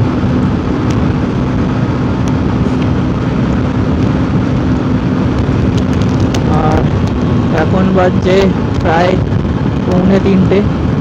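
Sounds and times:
motorcycle engine running: 0.0 - 11.0
wind rushing over microphone: 0.0 - 11.0.

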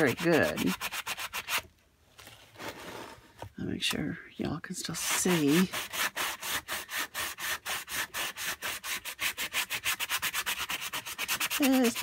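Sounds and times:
sanding block rasping on paper: 0.0 - 1.6, 5.0 - 12.0.

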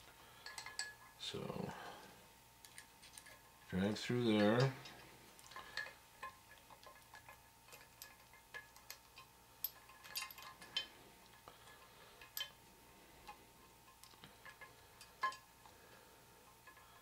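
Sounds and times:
metallic clicks and clinks in gearbox: 2.6 - 5.9.

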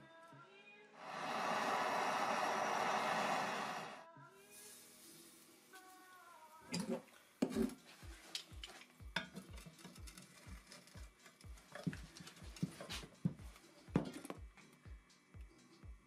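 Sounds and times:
oil sizzling on hot steel: 1.0 - 6.7
background music with beat: 7.8 - 16.0
wrench clinking and scraping metal: 9.2 - 12.9.

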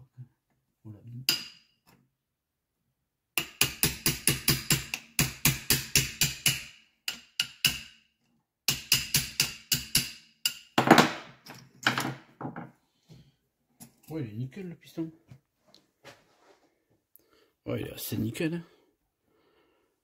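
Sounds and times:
hammer tapping on metal: 3.4 - 7.9.

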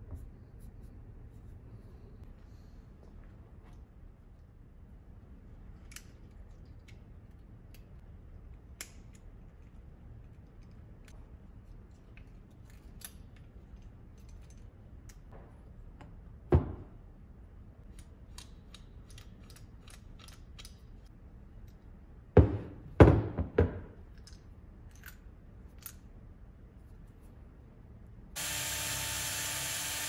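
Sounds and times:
parts knocking on bench: 16.6 - 16.9, 22.4 - 24.0.

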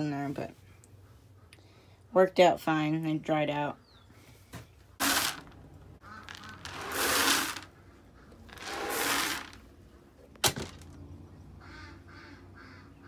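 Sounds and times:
pellets pouring into plastic bucket: 5.0 - 5.6, 6.2 - 7.7, 8.5 - 9.6.

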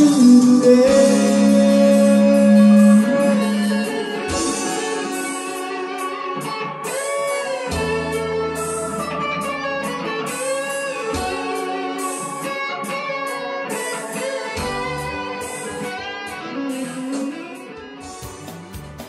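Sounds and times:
low bass notes: 0.0 - 6.0
electric guitar lead melody: 0.0 - 19.0.

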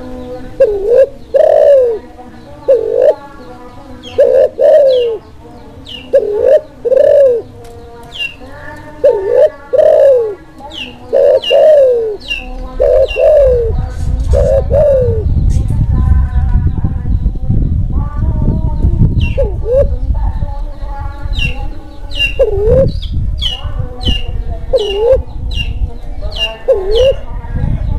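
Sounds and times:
dove cooing: 0.0 - 15.4, 19.2 - 20.0, 21.4 - 25.3, 26.3 - 27.3
low rumbling noise: 0.0 - 27.9.

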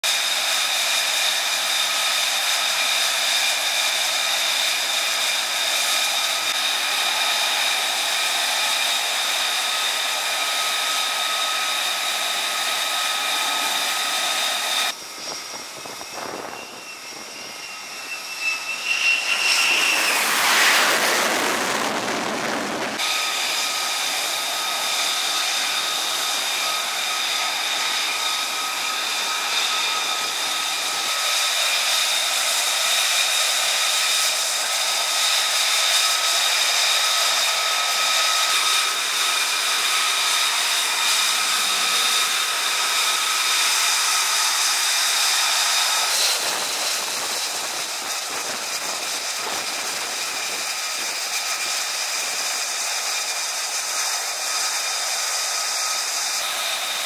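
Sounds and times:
jet engine running: 0.0 - 57.0
high whining tones: 2.6 - 33.9.

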